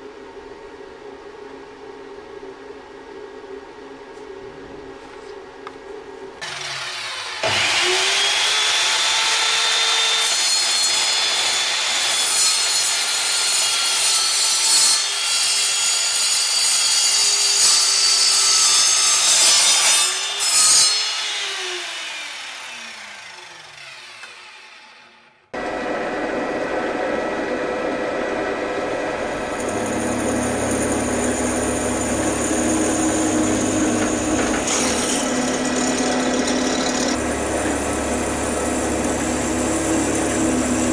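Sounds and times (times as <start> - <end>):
electric saw cutting steel: 6.4 - 40.9
drill press drilling steel: 29.5 - 40.9.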